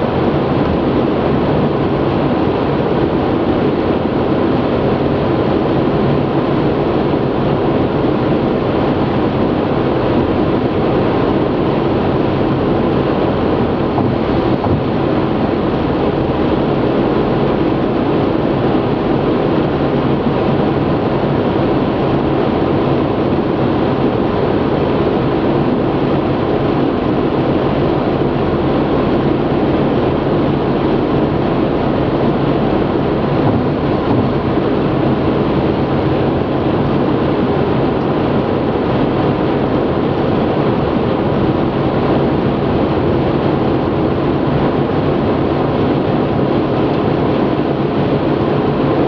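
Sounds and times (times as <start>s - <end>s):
road and tyre noise in car: 0.1s - 21.2s, 31.2s - 48.9s.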